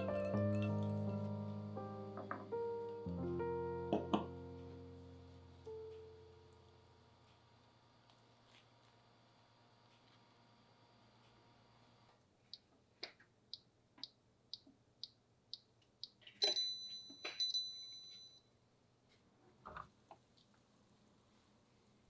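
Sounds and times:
oven timer ticking: 13.5s - 17.7s
timer bell ringing: 16.4s - 18.4s.

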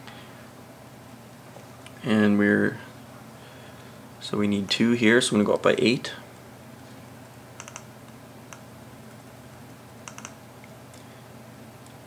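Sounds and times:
low steady hum: 0.0s - 12.0s
faint computer clicks: 7.6s - 8.7s, 10.0s - 10.4s.

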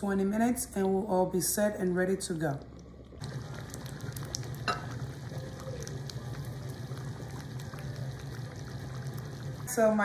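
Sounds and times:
stew bubbles popping: 2.3s - 9.7s.

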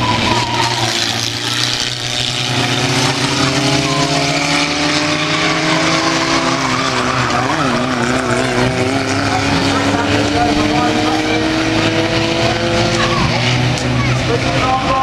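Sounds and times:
racing car engines revving: 0.0s - 15.0s.

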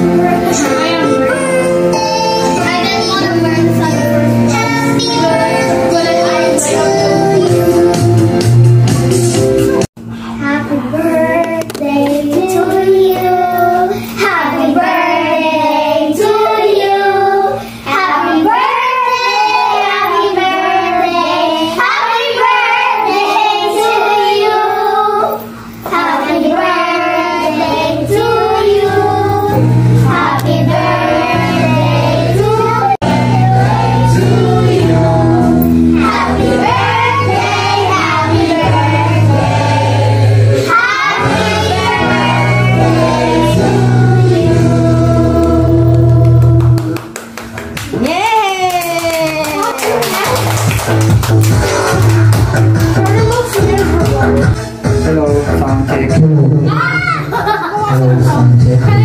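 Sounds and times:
music backing track: 0.0s - 59.0s
girls singing together: 3.9s - 8.2s, 10.4s - 47.0s.

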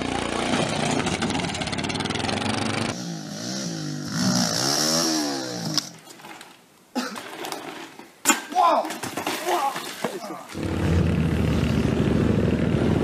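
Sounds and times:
motorcycle engine at high revs: 0.0s - 5.8s, 10.6s - 13.0s
dirt bike engine revving: 0.0s - 5.9s, 10.6s - 13.0s.

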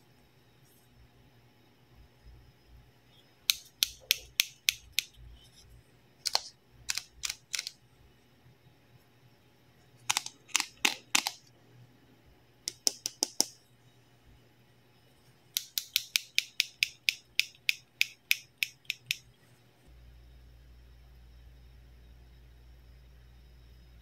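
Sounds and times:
plastic tweezers clicking: 3.5s - 5.2s, 6.3s - 7.8s, 10.1s - 11.4s, 15.6s - 19.3s.

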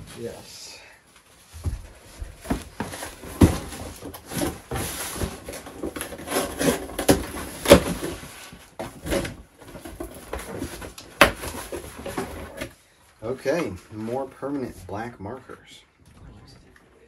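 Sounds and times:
cardboard box scraping and rustling: 2.4s - 12.7s.

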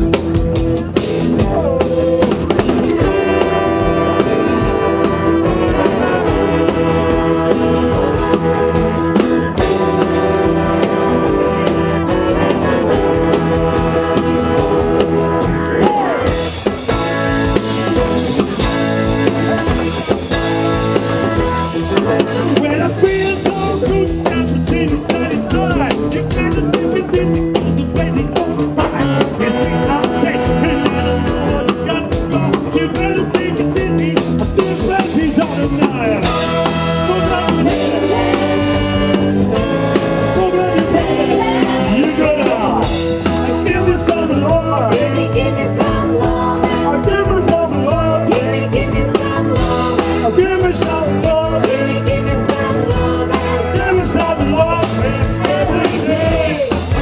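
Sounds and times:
horn section playing: 0.0s - 48.3s
drum kit beat: 0.0s - 57.0s
live band playing amplified music: 0.0s - 57.0s
several people singing: 22.3s - 39.4s, 40.1s - 57.0s.

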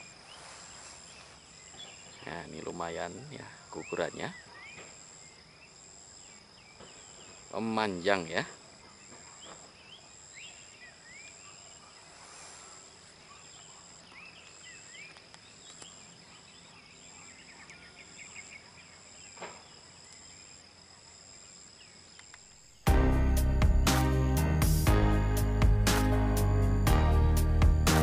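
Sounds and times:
bird chirps: 0.0s - 20.6s
insects droning: 0.0s - 28.0s
pulsing high tone: 22.9s - 28.0s.

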